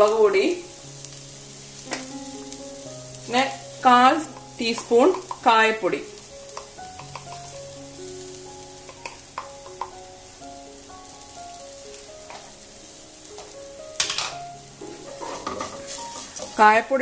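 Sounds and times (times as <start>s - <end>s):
onions sizzling in oil: 0.0s - 17.0s
soft background music: 0.0s - 17.0s
wooden spatula stirring: 3.9s - 5.9s, 6.5s - 7.6s, 14.8s - 16.8s.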